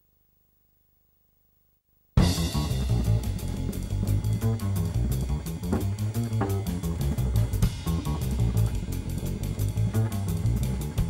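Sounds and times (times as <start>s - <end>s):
big band music: 2.2s - 11.0s.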